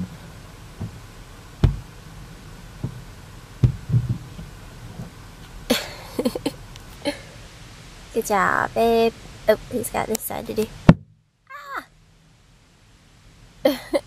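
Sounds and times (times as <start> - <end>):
squeegee thumps on car glass: 1.6 - 1.9, 3.6 - 4.5.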